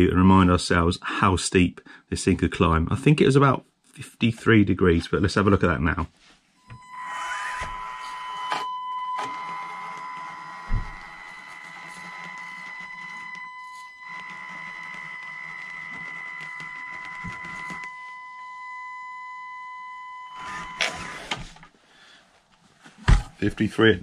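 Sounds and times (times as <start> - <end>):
small electric motor whining: 6.7 - 17.9, 20.3 - 21.6.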